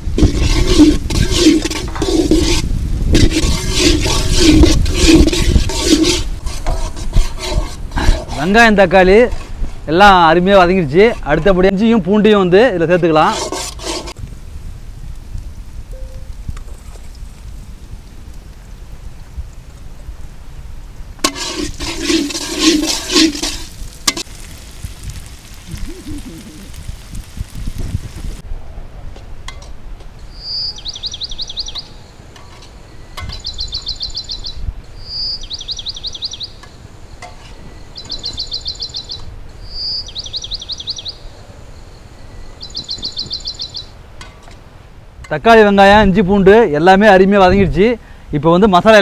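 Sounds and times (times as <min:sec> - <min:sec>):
food sizzling: 0:00.0 - 0:08.2, 0:21.2 - 0:28.4
metal spatula scraping pan: 0:00.1 - 0:08.6, 0:13.2 - 0:14.2, 0:21.2 - 0:24.3
sizzle of frying: 0:21.2 - 0:28.4.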